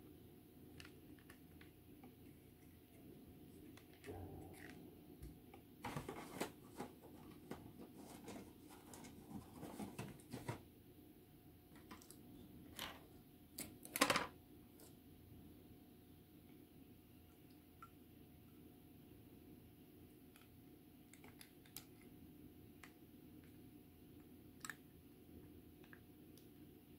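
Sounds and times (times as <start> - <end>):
plastic parts clicking and tapping: 13.6 - 14.3.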